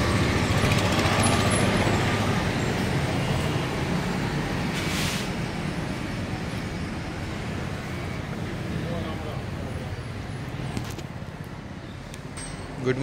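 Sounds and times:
vehicle rumble: 0.0s - 13.0s
brief hiss: 4.7s - 5.4s.

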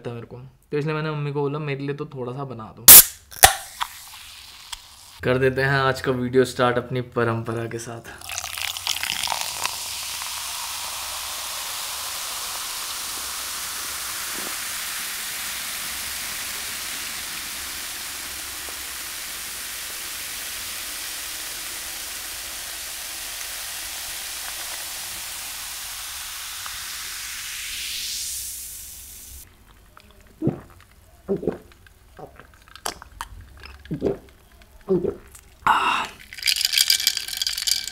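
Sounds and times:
steady hiss: 2.9s - 5.2s, 8.1s - 32.1s.

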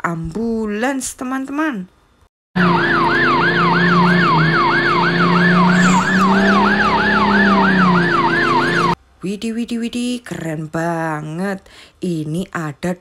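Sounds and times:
ambulance siren sweeping: 2.6s - 9.0s.

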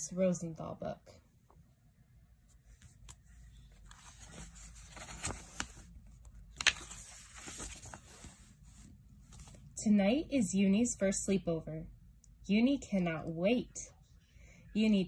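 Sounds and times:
book pages rustling: 2.4s - 9.7s
page snaps: 6.5s - 7.0s.

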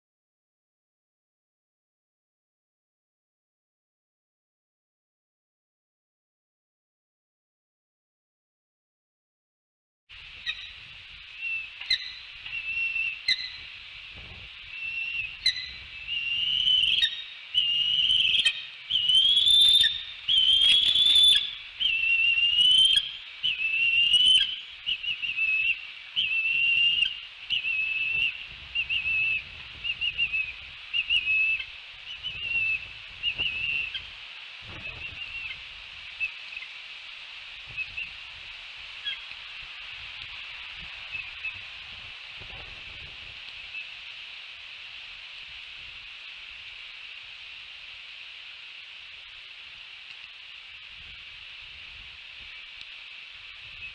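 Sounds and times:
wind rumbling on microphone: 10.1s - 36.6s, 37.3s - 48.1s, 50.6s - 53.9s
bald eagles calling: 11.4s - 14.1s, 14.7s - 34.2s.

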